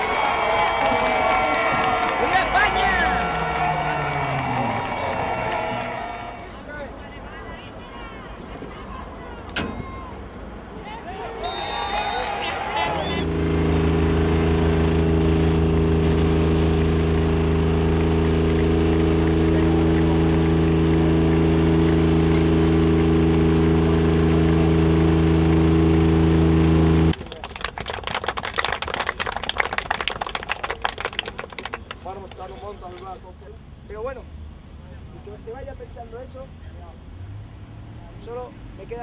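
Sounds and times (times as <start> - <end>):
crowd voices: 0.0 - 27.4
loud steady multi-tone hum: 0.0 - 27.4, 28.6 - 39.0.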